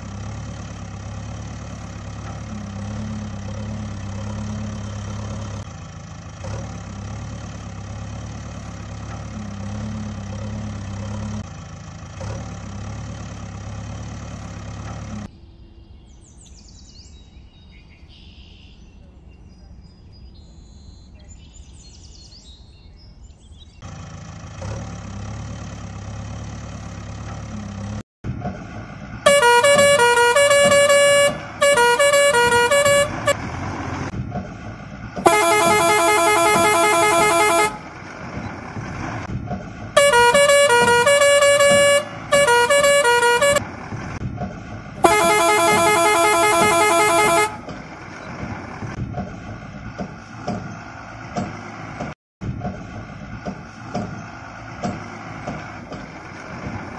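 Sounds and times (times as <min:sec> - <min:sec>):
truck horn blasts: 0:29.2 - 0:34.1, 0:35.2 - 0:38.1, 0:40.0 - 0:43.9, 0:45.0 - 0:48.0.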